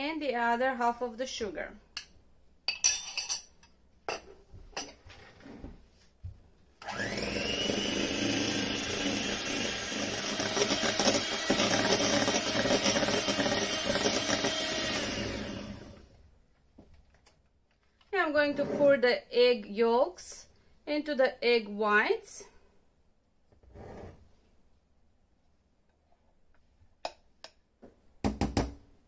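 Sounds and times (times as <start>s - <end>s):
electric mixer whisking: 6.8s - 16.1s.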